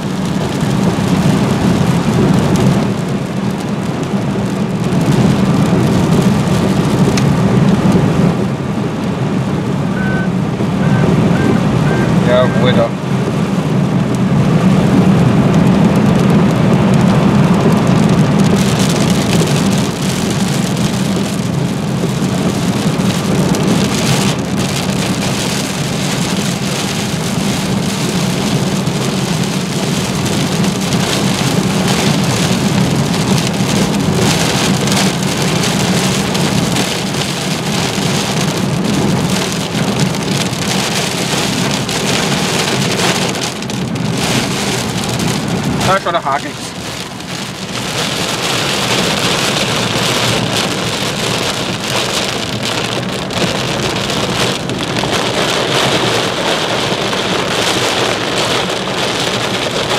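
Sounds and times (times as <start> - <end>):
steady low rumble: 0.0 - 25.2, 38.4 - 59.3
heavy rain on car: 0.0 - 59.9.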